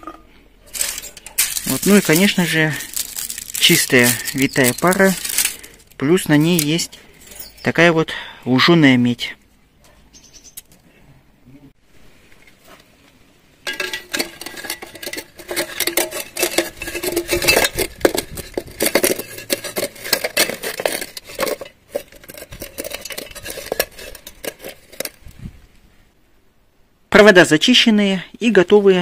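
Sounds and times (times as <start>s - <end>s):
wire rattling in a tin can: 0.0s - 7.7s, 13.6s - 25.4s.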